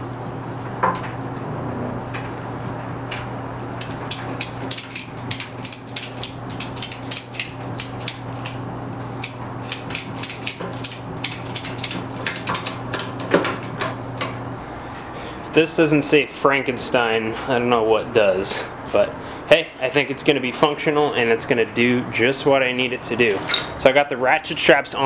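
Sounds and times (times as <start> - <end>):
low hum: 0.0 - 15.9
ratchet strap clicking: 3.8 - 13.8.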